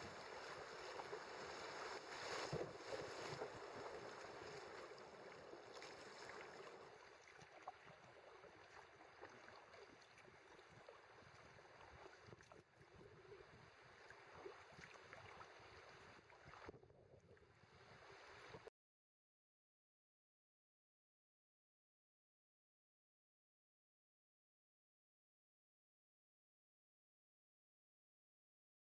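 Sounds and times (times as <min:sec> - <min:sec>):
river water rushing around a boat: 0:00.0 - 0:12.4
small splashes and ticks: 0:00.0 - 0:16.7.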